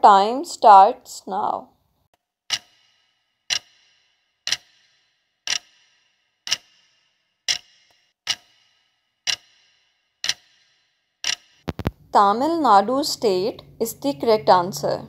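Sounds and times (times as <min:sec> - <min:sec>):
clock ticking: 0:02.5 - 0:12.4.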